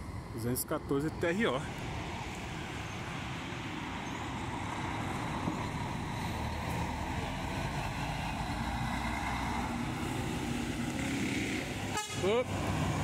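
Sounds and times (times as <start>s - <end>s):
road noise: 0.0s - 13.0s.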